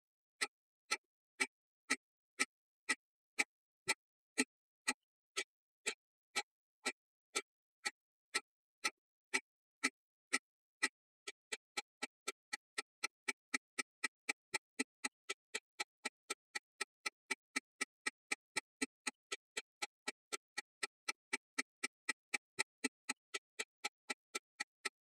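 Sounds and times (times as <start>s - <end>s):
clock ticking fast: 11.3s - 25.0s.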